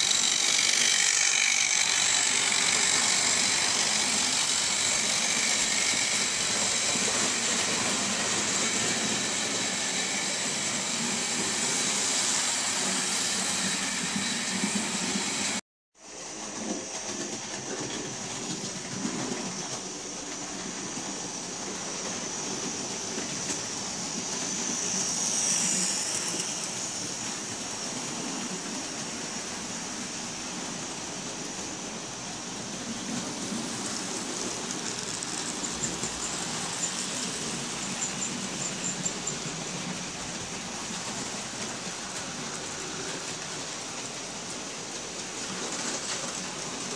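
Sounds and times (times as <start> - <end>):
small electric motors: 0.0 - 15.6, 33.0 - 39.8
model train wheels on rail: 0.0 - 46.9.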